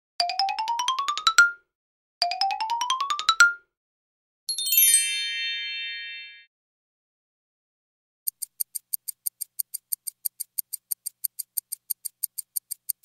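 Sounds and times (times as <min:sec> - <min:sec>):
falling chime cascade: 0:04.5 - 0:06.5.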